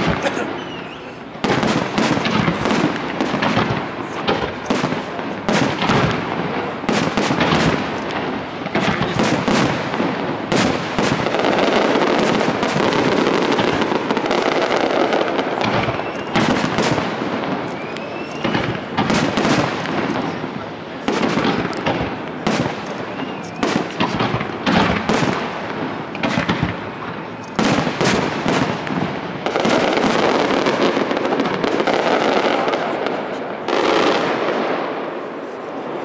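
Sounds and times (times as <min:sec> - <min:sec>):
firework crackling: 0:00.0 - 0:36.0
firework rising whistle: 0:17.6 - 0:18.9.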